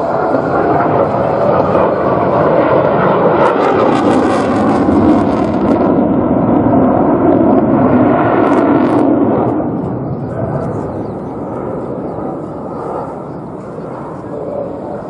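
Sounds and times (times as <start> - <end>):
fighter jet engine roar: 0.0 - 15.0.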